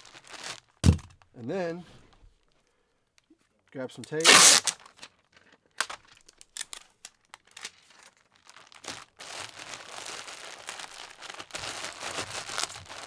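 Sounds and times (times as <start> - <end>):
bubble wrap crackling: 0.0 - 1.2, 4.2 - 5.0, 5.8 - 13.0
insulation crinkling rustle: 3.6 - 13.0.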